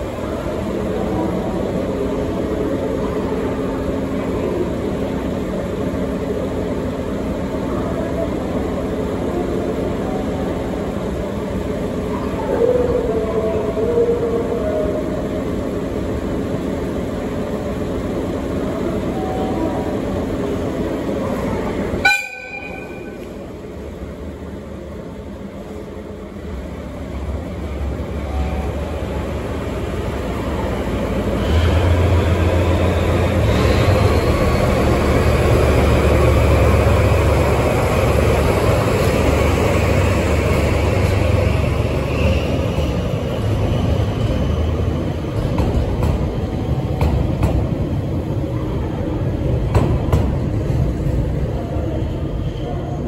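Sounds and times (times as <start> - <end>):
rolling of train cars: 0.0 - 53.0
locomotive horn toot: 22.0 - 23.2.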